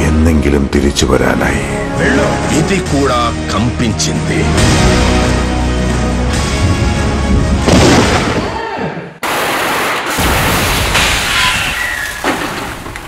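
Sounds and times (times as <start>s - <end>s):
dramatic music with heavy hit: 1.6s - 8.2s
explosions: 7.5s - 8.6s.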